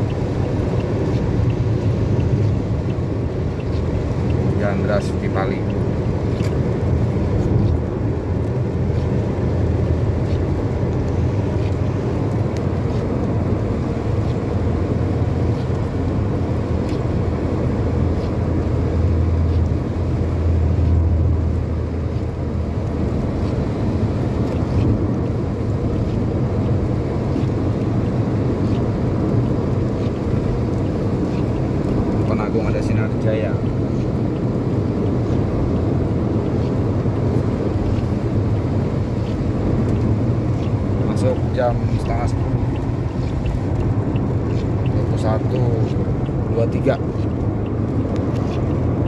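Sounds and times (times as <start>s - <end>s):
tyre and engine rumble: 0.0s - 49.0s.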